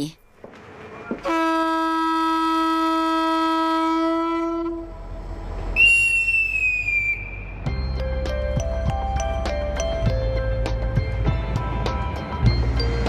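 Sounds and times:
diesel locomotive horn: 1.1s - 7.6s
high falling whistle: 5.7s - 7.7s
music: 7.2s - 13.0s.

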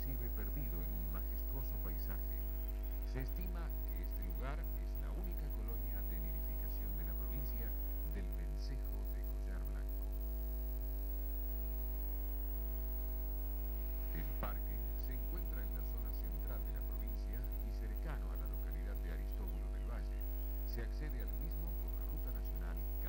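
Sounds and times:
loud electrical hum: 0.0s - 23.0s.

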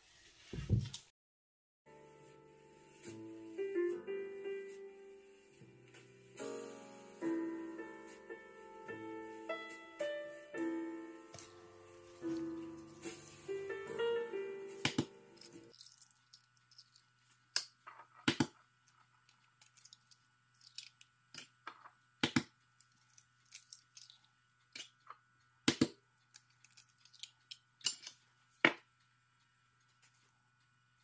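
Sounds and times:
eggs cracking against bowl: 14.9s - 21.6s, 22.2s - 25.1s, 25.7s - 28.1s.

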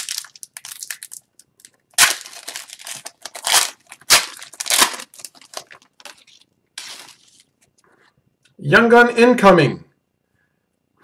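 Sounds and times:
foil wrapper crinkling rips: 0.0s - 7.5s.

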